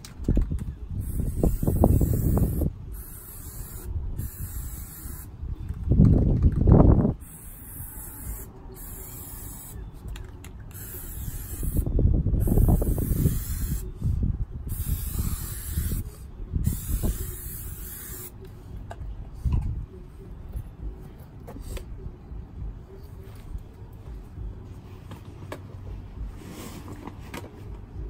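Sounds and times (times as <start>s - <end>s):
spray can hissing: 1.0s - 5.3s, 7.2s - 9.8s, 10.7s - 13.9s, 14.7s - 18.4s.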